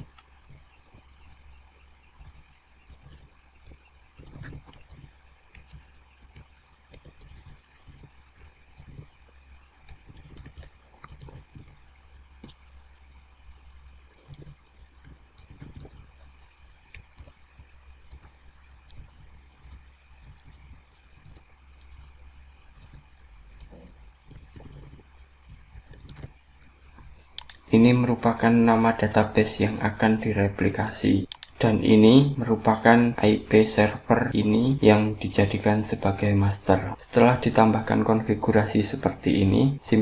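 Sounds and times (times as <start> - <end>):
computer keyboard typing: 0.0 - 1.4, 2.0 - 26.7, 27.3 - 31.7.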